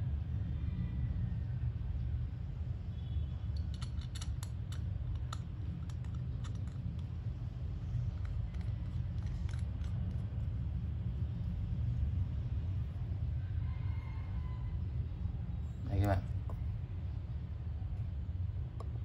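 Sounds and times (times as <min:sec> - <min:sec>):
steady low hum: 0:00.0 - 0:19.0
wristwatch clicks and clinks: 0:03.5 - 0:10.4.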